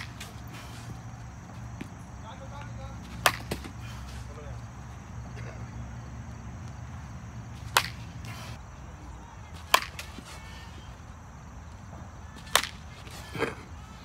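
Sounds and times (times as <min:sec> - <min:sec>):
bat cracking baseball: 0:03.1 - 0:03.8, 0:07.6 - 0:08.4, 0:09.6 - 0:10.4, 0:12.4 - 0:13.6.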